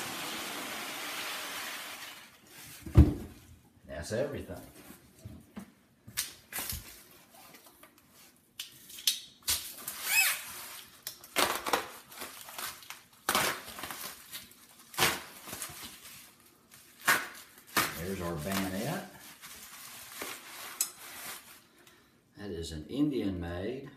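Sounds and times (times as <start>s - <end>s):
bubble wrap crinkling: 6.2s - 21.8s.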